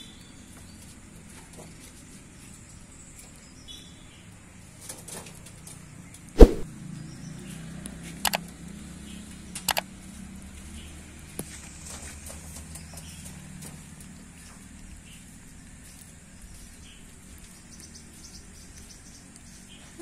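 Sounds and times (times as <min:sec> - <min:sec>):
quick double clicks: 0:06.4 - 0:06.7
sharp knock: 0:06.4 - 0:06.7.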